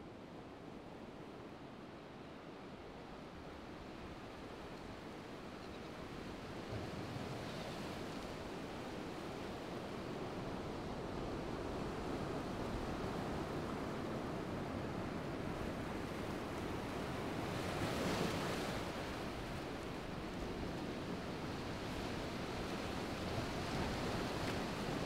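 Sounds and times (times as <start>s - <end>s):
wind: 0.0s - 25.0s.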